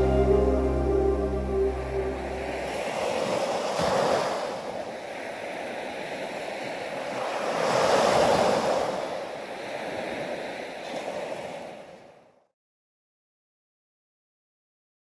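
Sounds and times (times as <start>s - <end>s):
ocean waves washing in: 0.0s - 12.1s.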